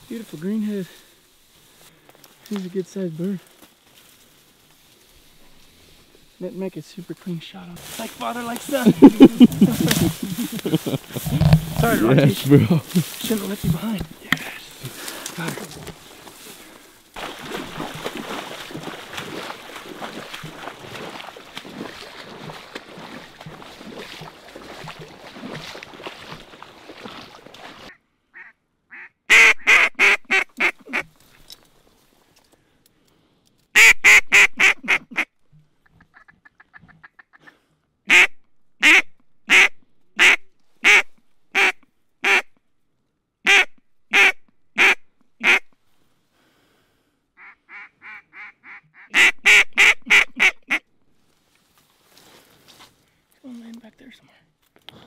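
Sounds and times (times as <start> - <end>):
rustling: 0.0 - 24.0
duck call quacks: 28.4 - 31.1, 33.8 - 35.3, 36.0 - 37.5, 38.1 - 42.5, 43.5 - 45.7, 47.4 - 50.8.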